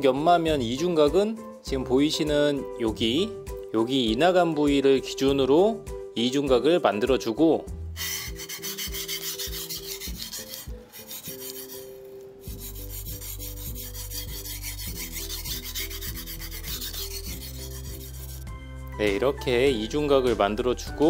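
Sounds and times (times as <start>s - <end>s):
knife scraping on whetstone: 8.0s - 18.5s.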